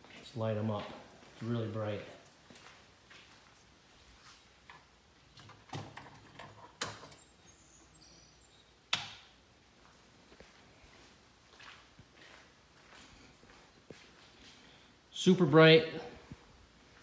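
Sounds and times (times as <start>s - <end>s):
quiet footsteps: 0.0s - 5.5s, 9.6s - 15.0s, 16.1s - 17.0s.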